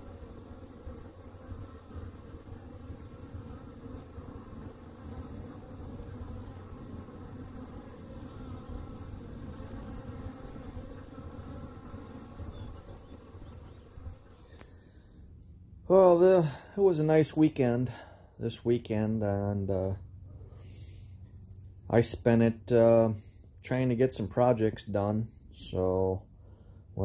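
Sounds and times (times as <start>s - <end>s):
honey bees buzzing: 0.0s - 15.1s.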